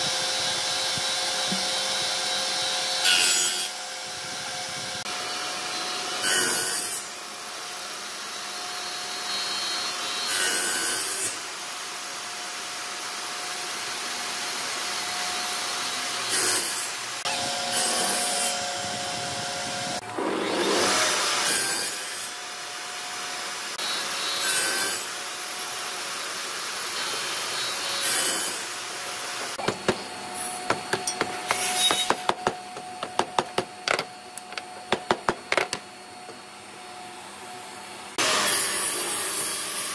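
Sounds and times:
table saw cutting wood: 0:00.0 - 0:11.5, 0:13.4 - 0:36.5, 0:38.1 - 0:39.9
sharp knocks: 0:30.7 - 0:35.9.

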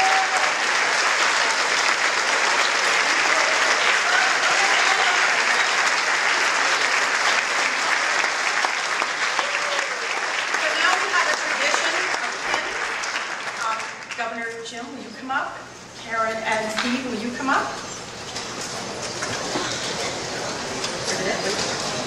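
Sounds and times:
audience applauding: 0:00.0 - 0:14.2.

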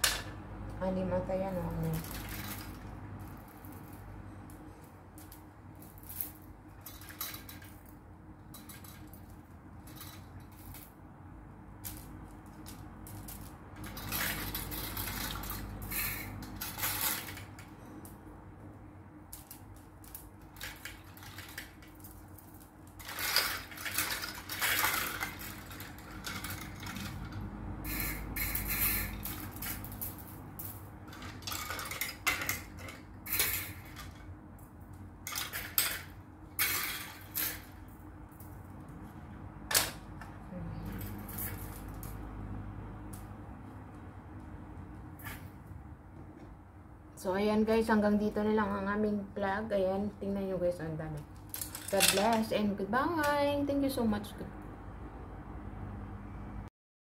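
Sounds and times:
wire hangers clinking and rattling: 0:01.0 - 0:11.1, 0:11.8 - 0:18.3, 0:19.3 - 0:43.3, 0:51.1 - 0:53.7.

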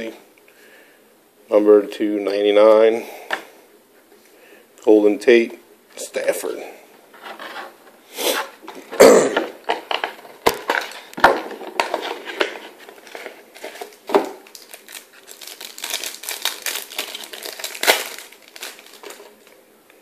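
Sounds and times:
plastic wrapper tearing and crinkling: 0:11.8 - 0:19.6.

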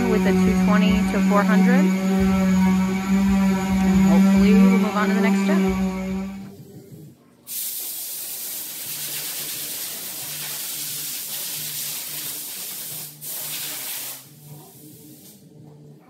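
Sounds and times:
compressed air hissing: 0:07.5 - 0:15.4.

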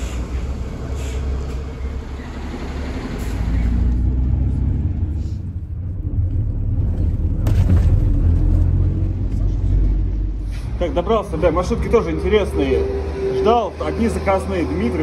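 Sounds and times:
minibus engine rumbling: 0:00.0 - 0:15.0.

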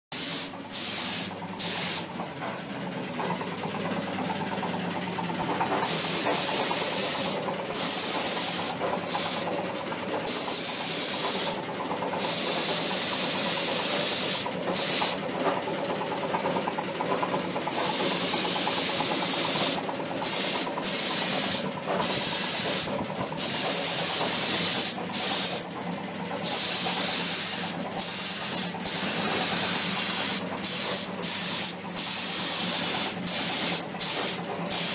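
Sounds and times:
paint spray gun hissing: 0:00.1 - 0:02.1, 0:05.8 - 0:09.5, 0:10.3 - 0:11.6, 0:12.2 - 0:15.2, 0:17.7 - 0:25.6, 0:26.4 - 0:34.9
machine hum: 0:01.3 - 0:10.6.

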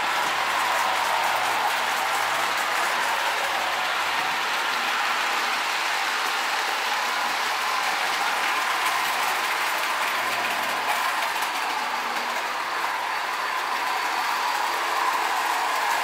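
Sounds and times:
metal wheels clattering on rails: 0:00.0 - 0:16.0
toy locomotive mechanism whirring: 0:00.0 - 0:16.0.

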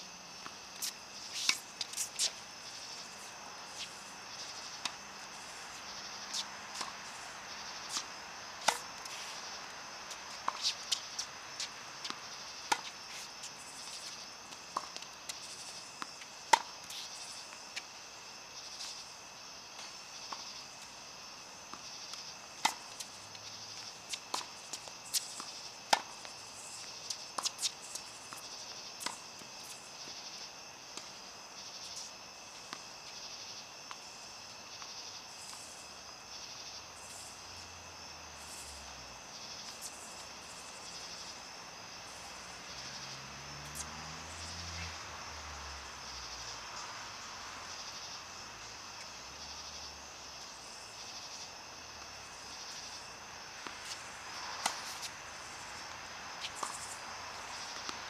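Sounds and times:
insects buzzing: 0:00.0 - 0:58.0
racquets striking tennis balls: 0:00.4 - 0:17.9, 0:21.7 - 0:31.9
tennis balls bouncing: 0:00.4 - 0:18.0, 0:21.6 - 0:34.2, 0:53.6 - 0:55.2, 0:55.8 - 0:58.0.

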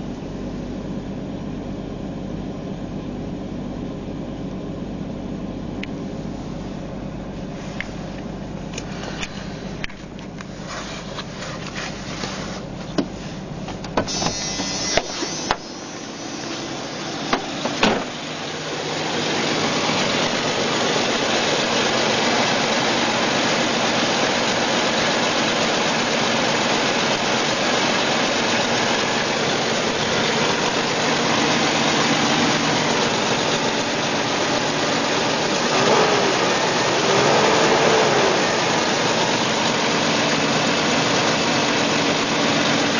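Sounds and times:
car engine rough idle with tapping: 0:00.0 - 0:42.9.

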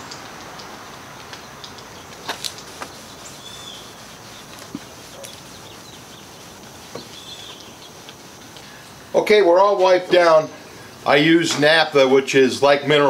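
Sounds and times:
birds: 0:00.0 - 0:09.2.

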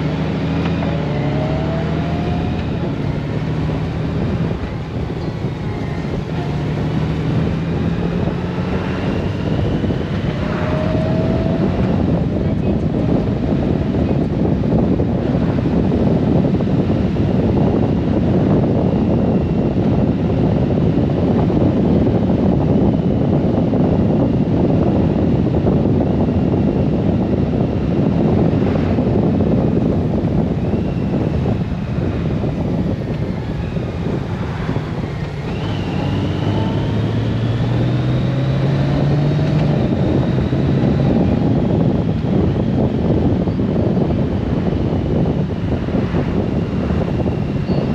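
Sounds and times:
motorcycle engine hum: 0:00.0 - 0:47.9
tyres on road: 0:00.0 - 0:47.9
wind rushing over microphone: 0:00.0 - 0:47.9.

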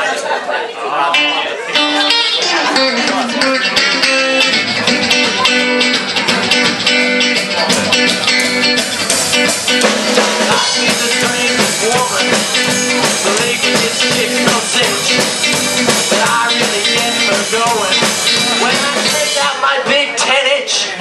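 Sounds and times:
electric guitar: 0:01.1 - 0:19.6
strummed acoustic guitar: 0:01.6 - 0:20.5
upright double bass: 0:01.8 - 0:19.6
steady clicking beat: 0:03.8 - 0:19.2.

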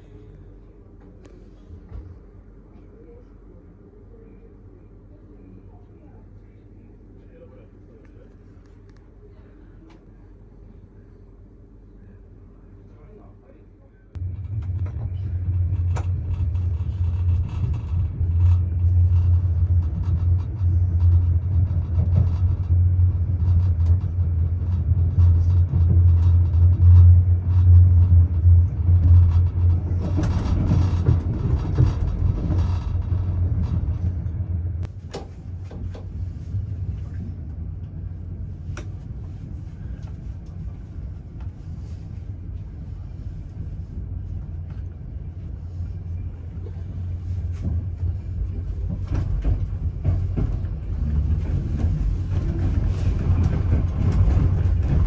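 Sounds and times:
train rumbling on rails: 0:14.1 - 0:55.0.

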